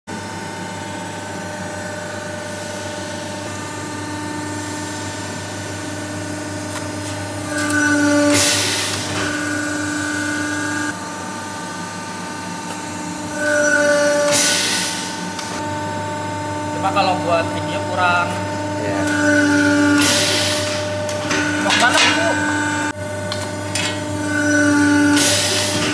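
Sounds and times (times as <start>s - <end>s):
hydraulic pump whining hum: 0.1s - 25.9s
loud hydraulic hiss: 7.9s - 9.2s, 13.7s - 15.1s, 19.0s - 21.4s, 24.7s - 25.9s.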